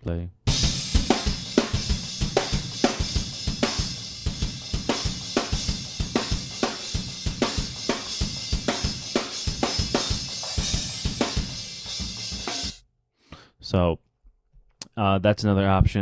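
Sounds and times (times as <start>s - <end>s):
hi-hat and cymbal wash: 0.5s - 12.8s
kick drum: 0.5s - 12.8s.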